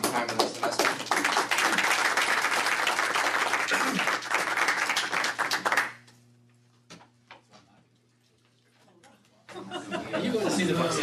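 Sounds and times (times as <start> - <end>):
people clapping: 0.0 - 6.1.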